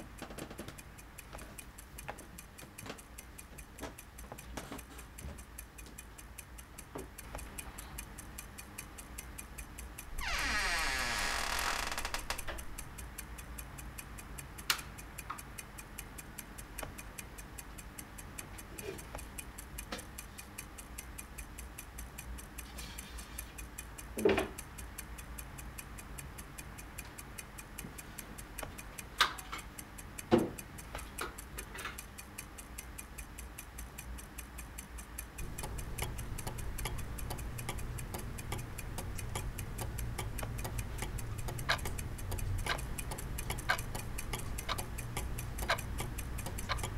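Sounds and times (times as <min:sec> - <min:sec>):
clock ticking: 0:00.0 - 0:46.9
low hum: 0:35.4 - 0:46.9.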